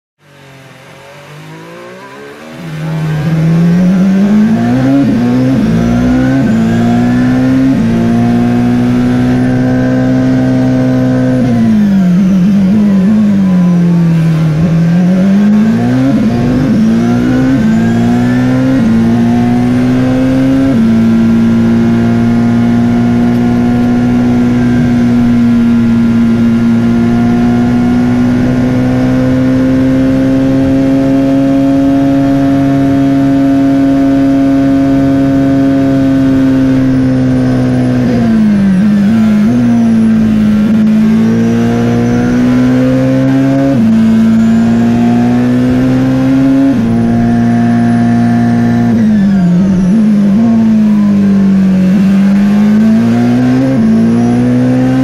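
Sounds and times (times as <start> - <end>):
racing car engine revving: 0.2 - 55.0.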